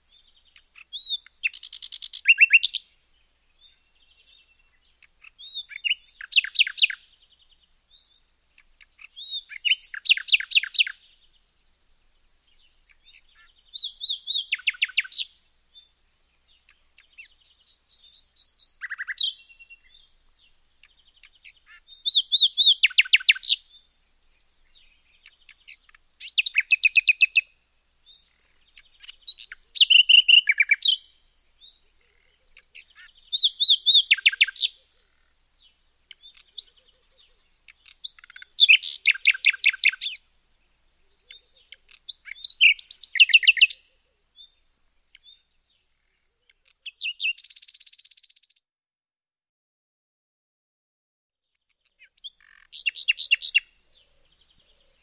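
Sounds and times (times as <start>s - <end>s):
songbird singing: 0.0s - 48.7s, 51.4s - 55.0s.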